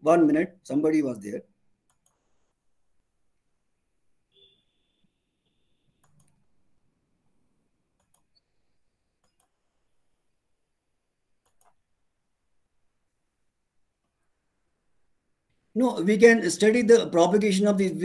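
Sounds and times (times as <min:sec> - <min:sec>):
faint mouse double-clicks: 0:05.9 - 0:06.4.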